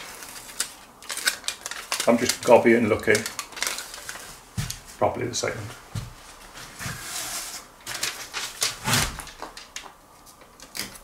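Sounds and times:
tape tearing off roll: 6.9s - 9.7s.

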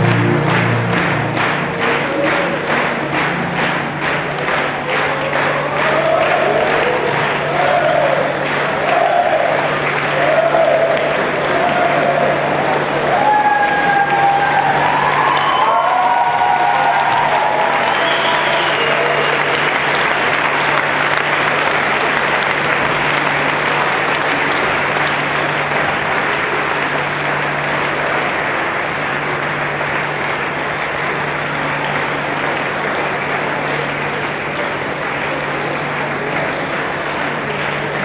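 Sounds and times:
steady low hum: 0.0s - 5.1s
crowd applauding: 0.0s - 38.0s.

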